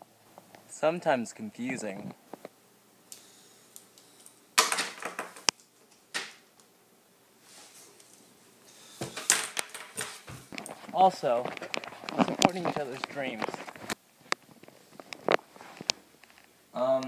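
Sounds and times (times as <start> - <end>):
paper rustling: 9.0 - 16.0.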